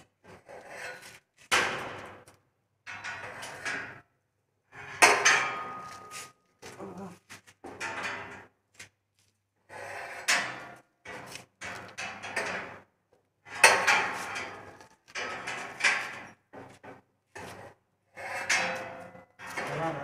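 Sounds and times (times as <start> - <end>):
metal rolling shutter rattling: 10.3 - 12.8, 13.5 - 16.8, 17.4 - 20.0.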